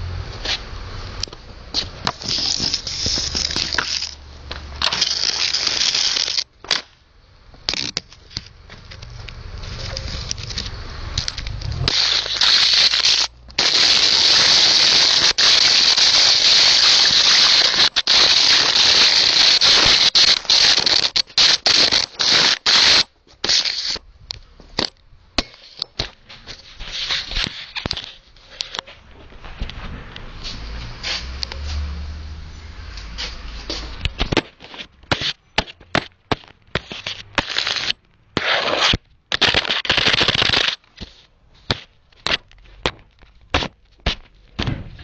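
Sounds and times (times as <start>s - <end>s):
harsh crackling hiss: 0.0s - 28.8s, 36.3s - 42.1s
crackles and pops: 1.1s - 28.9s, 34.0s - 41.1s.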